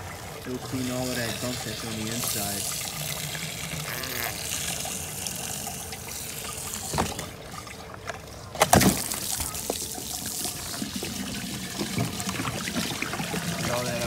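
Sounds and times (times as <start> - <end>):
hose water running into container: 0.0 - 14.0.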